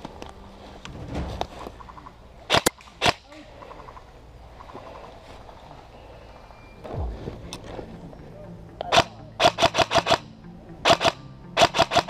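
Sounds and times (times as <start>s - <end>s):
airsoft gun shots: 8.9s - 10.2s, 10.8s - 12.0s.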